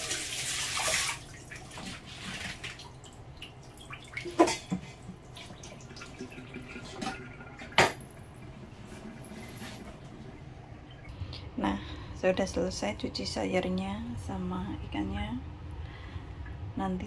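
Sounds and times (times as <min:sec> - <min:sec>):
water draining in sink: 0:00.0 - 0:11.1.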